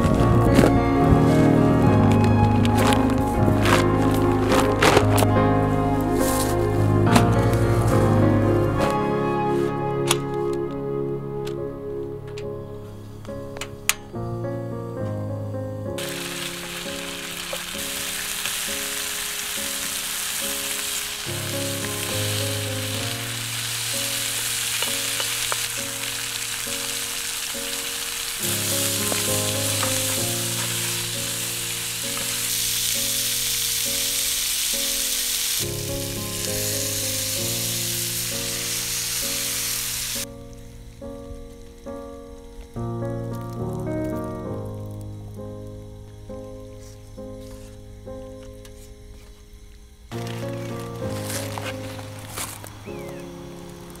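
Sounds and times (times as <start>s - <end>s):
background music: 0.0s - 54.0s
food sizzling in a pan: 16.0s - 40.3s, 49.5s - 54.0s.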